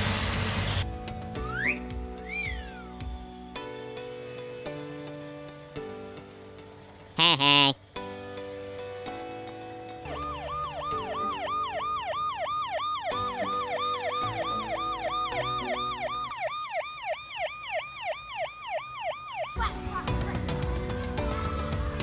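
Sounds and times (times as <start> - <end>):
soft background music: 0.8 - 22.0
siren cycling fast: 10.1 - 19.6.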